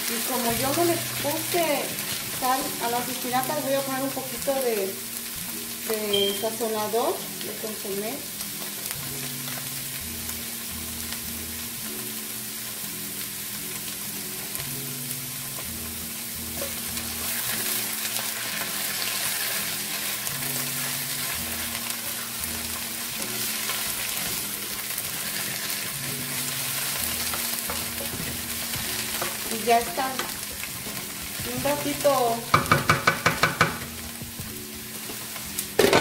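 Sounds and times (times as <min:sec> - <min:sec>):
vegetables sizzling in a pan: 0:00.0 - 0:36.0
spatula stirring in a pan: 0:15.5 - 0:35.4.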